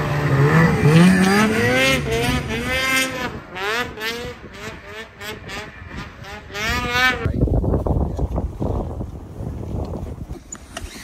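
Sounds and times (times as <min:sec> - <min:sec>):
snowmobile engine revving: 0:00.0 - 0:07.4.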